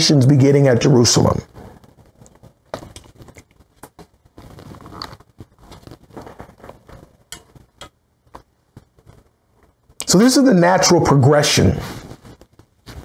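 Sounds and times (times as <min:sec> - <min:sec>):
soft rustling: 0:01.5 - 0:10.0, 0:11.8 - 0:13.0.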